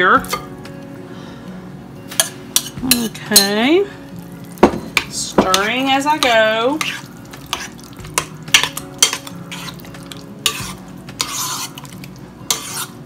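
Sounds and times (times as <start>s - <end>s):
utensil scraping bowl: 5.5s - 13.0s
utensil stirring thick mixture: 6.2s - 13.0s.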